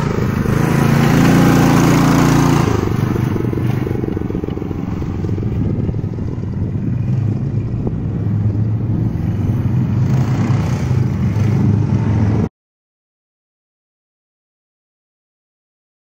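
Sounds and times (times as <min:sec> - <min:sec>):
mini bike engine revving: 0:00.0 - 0:12.5.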